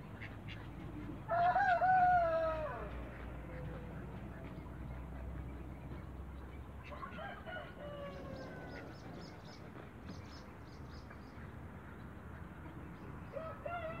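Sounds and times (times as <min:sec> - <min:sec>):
rooster crowing: 0:01.3 - 0:02.9, 0:13.4 - 0:14.0.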